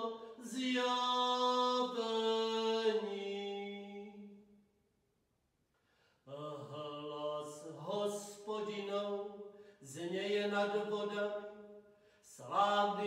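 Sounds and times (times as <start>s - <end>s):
man chanting: 0.0s - 4.2s, 12.3s - 13.0s.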